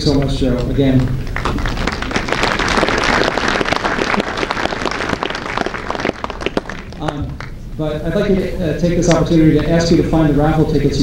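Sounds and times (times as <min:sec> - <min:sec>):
audience applauding: 0:01.2 - 0:07.6.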